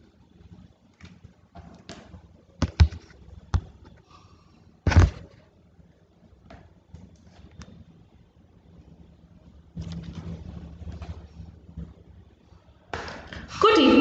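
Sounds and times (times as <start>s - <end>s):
faint low hum: 0.0s - 14.0s.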